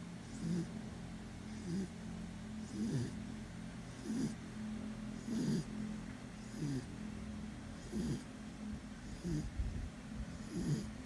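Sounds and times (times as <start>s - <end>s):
dog snoring: 0.2s - 0.8s, 1.5s - 2.0s, 2.6s - 3.2s, 3.9s - 4.4s, 5.2s - 5.7s, 6.4s - 6.9s, 7.8s - 8.3s, 9.0s - 9.6s, 10.2s - 11.0s.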